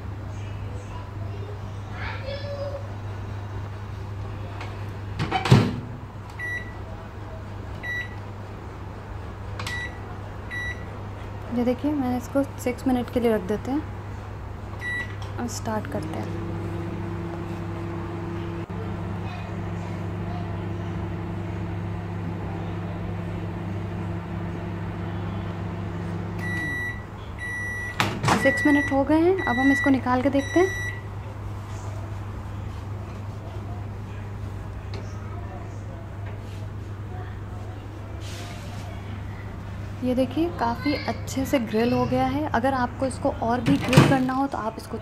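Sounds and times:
microwave humming: 3.4s - 11.0s, 11.6s - 31.6s
microwave electronic beep: 6.4s - 6.8s, 7.8s - 8.2s, 9.7s - 10.9s, 14.8s - 15.2s, 25.6s - 31.1s.

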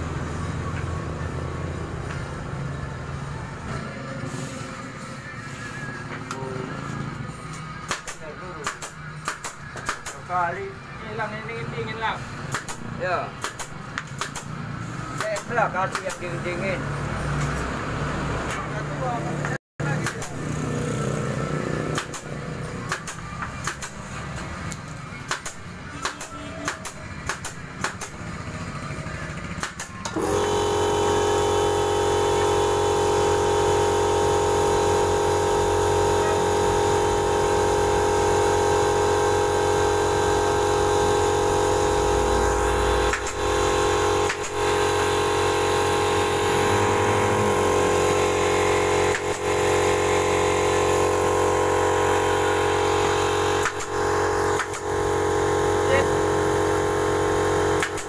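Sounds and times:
air compressor running: 0.0s - 58.0s
pneumatic staple gun firing: 7.8s - 10.3s, 12.5s - 14.6s, 20.0s - 20.4s, 21.9s - 24.1s, 25.2s - 28.2s, 29.6s - 30.6s, 36.8s - 55.4s, 57.5s - 58.0s.

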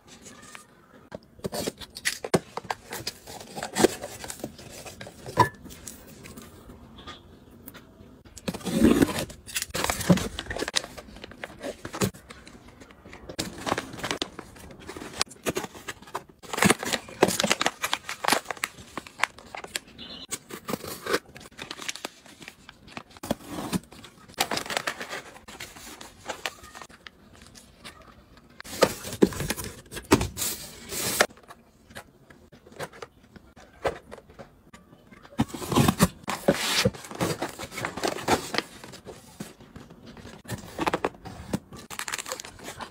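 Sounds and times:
plastic pouches crinkling: 8.4s - 28.0s, 35.4s - 42.9s.

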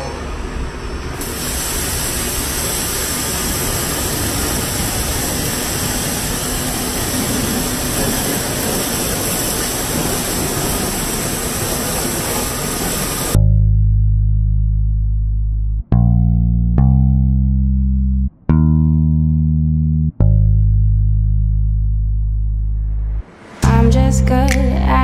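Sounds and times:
pressure washer spraying: 1.2s - 13.4s.

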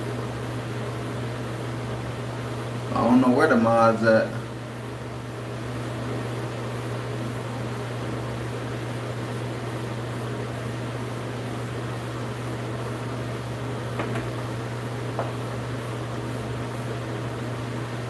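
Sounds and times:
fan running with hum and hiss: 0.0s - 18.0s.

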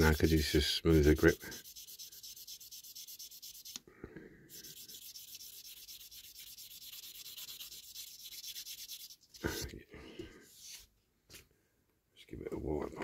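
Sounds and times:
sanding stick scratching plastic: 0.0s - 3.8s, 4.5s - 9.6s.

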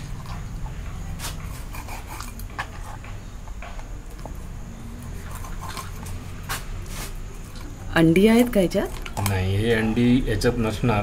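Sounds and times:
cleaver scraping fish skin: 1.1s - 3.2s.

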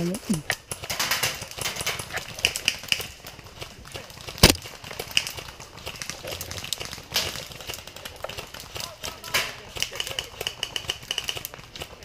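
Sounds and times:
airsoft gun shot: 4.4s - 4.6s.

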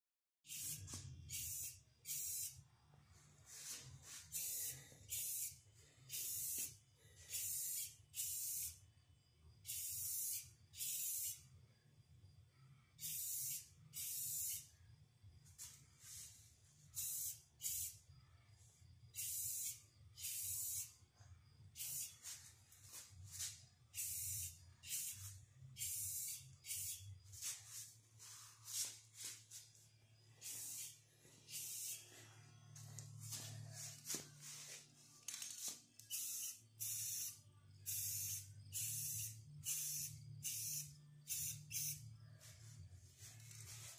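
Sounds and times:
aerosol spray can hissing: 0.5s - 2.6s, 3.5s - 8.8s, 9.7s - 11.4s, 13.0s - 14.7s, 17.0s - 18.0s, 19.2s - 21.0s, 21.8s - 29.4s, 30.4s - 32.0s, 35.6s - 42.0s.

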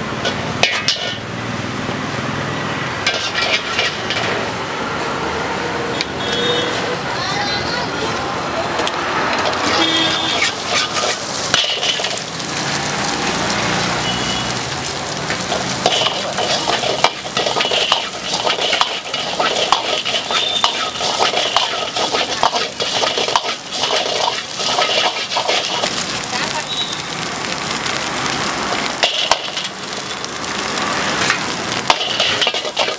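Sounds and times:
frying sizzle: 0.0s - 5.3s, 8.4s - 32.9s
steel ladle scraping a wok: 0.2s - 1.2s, 3.0s - 4.5s, 9.2s - 12.4s, 15.4s - 26.0s, 29.0s - 30.1s, 31.3s - 32.9s.

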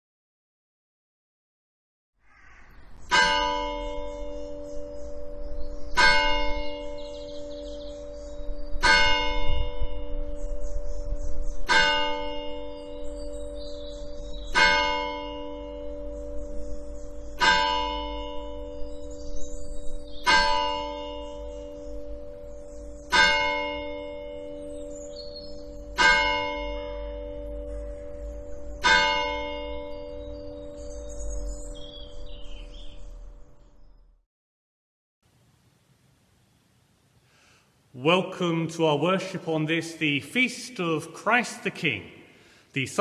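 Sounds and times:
church bell tolling: 3.1s - 33.6s.

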